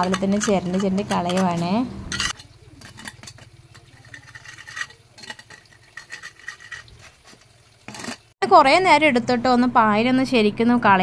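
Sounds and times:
trowel scraping concrete: 0.0 - 8.4.

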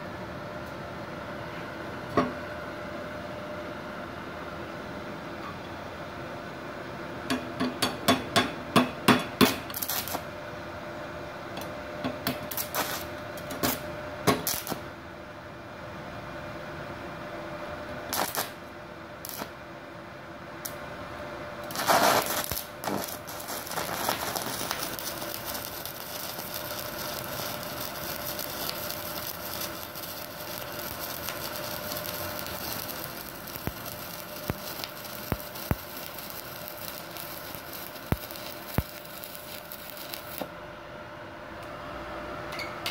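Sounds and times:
welding arc crackling hiss: 9.4 - 10.3, 11.6 - 14.9, 18.1 - 19.6, 21.6 - 40.5
electrode clicks and sputters: 21.7 - 40.4.

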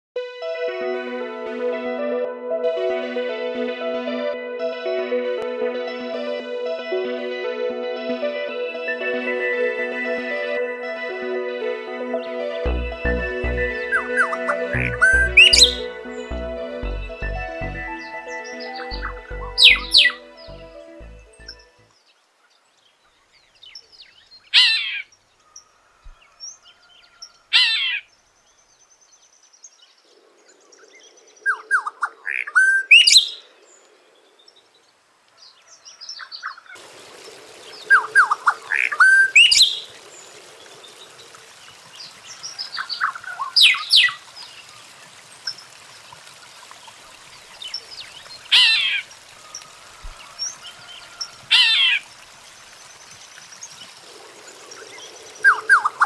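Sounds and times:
bird calling: 13.2 - 16.8, 17.4 - 21.7, 47.5 - 52.2
faint steady hiss: 21.8 - 56.0.

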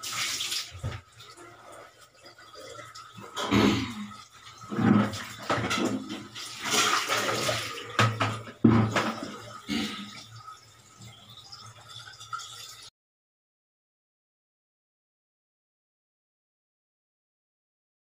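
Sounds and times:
water sloshing in a bucket: 0.0 - 12.9
plastic knocking on plastic: 8.0 - 9.3.

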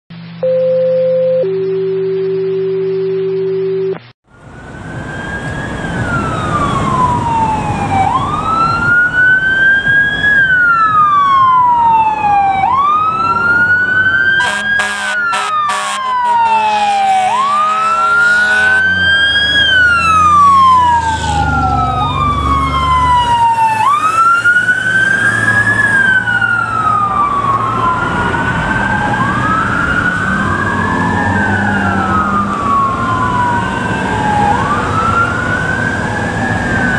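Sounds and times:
steady siren tone: 0.1 - 36.9
sirens wailing: 4.3 - 36.9
air horn blasts: 14.4 - 19.0.

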